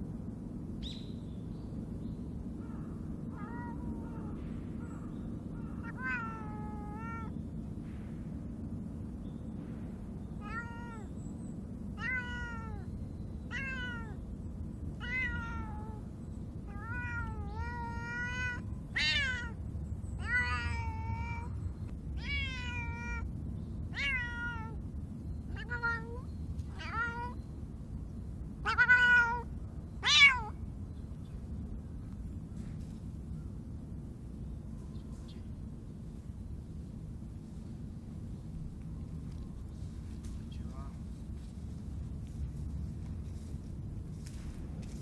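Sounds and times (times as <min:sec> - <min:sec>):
cat meowing: 0:03.3 - 0:04.4, 0:05.6 - 0:07.4, 0:10.4 - 0:11.1, 0:12.0 - 0:12.9, 0:13.5 - 0:14.2, 0:15.0 - 0:16.1, 0:16.7 - 0:19.6, 0:20.2 - 0:23.3, 0:23.9 - 0:24.8, 0:25.5 - 0:27.4, 0:28.6 - 0:30.6.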